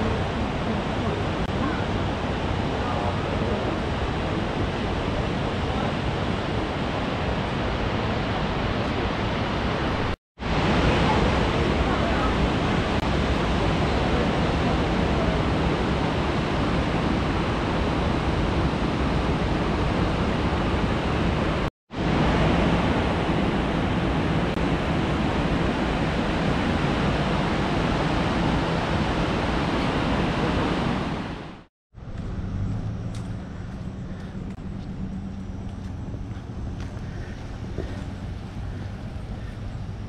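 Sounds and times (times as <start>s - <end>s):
waterfall roaring: 0.0s - 31.7s
low hum: 32.0s - 40.0s.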